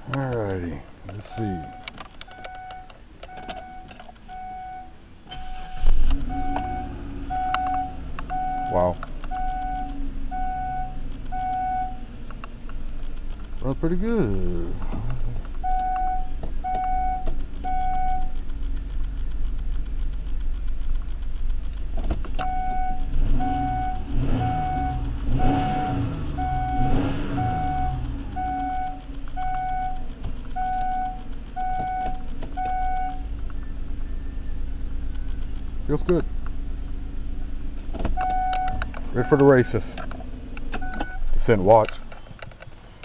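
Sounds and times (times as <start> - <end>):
dashboard warning chime beeping: 1.1 - 12.2, 15.6 - 18.4, 22.4 - 36.2, 38.1 - 40.0, 40.8 - 41.6
car engine revving: 5.3 - 42.1.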